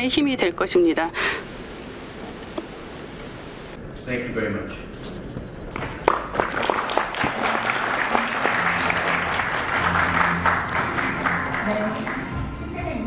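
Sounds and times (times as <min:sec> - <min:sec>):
audience applauding: 0:05.8 - 0:12.6.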